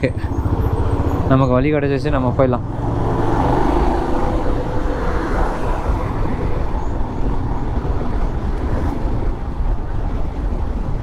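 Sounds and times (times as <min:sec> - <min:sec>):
motorcycle engine running: 0:00.0 - 0:04.9
road and wind noise: 0:00.0 - 0:11.0.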